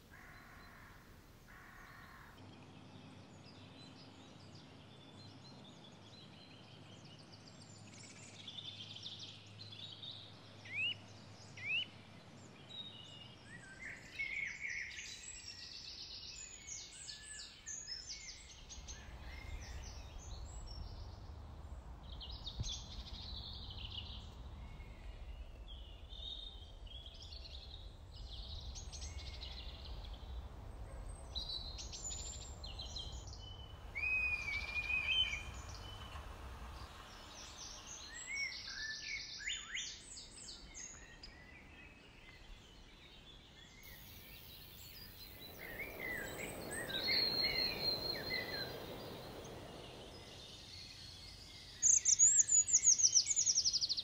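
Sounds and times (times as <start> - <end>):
small birds chirping and trilling: 0.0 - 54.0
steady low rumble: 17.9 - 38.5, 43.9 - 51.8.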